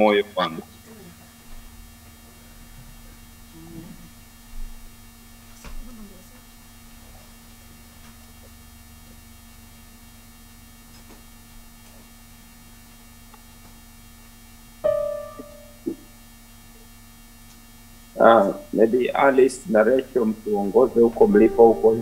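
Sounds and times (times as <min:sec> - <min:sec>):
electrical hum: 0:00.0 - 0:22.0
short loud pitched note: 0:14.8 - 0:16.0, 0:21.1 - 0:22.0.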